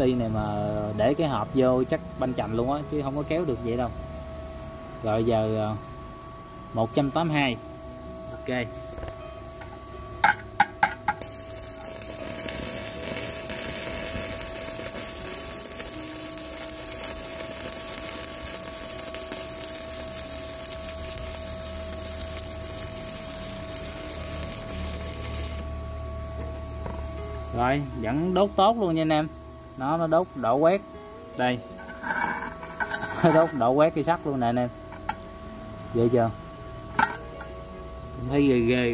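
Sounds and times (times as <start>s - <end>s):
welding arc crackling: 10.2s - 25.8s, 31.5s - 36.3s.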